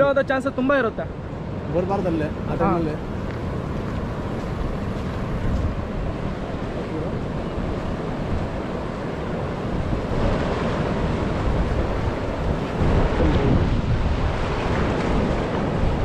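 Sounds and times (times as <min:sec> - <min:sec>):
wind buffeting microphone: 0:00.0 - 0:16.0
river water rushing over rocks: 0:00.7 - 0:16.0.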